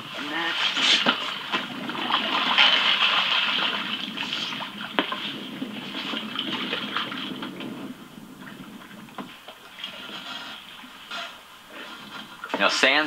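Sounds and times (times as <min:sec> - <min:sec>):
fish splashing at water surface: 0:00.1 - 0:07.8.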